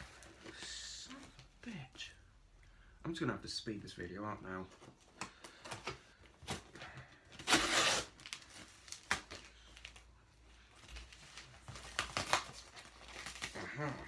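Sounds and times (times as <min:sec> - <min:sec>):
cardboard tearing: 0:07.3 - 0:09.5, 0:11.7 - 0:14.0.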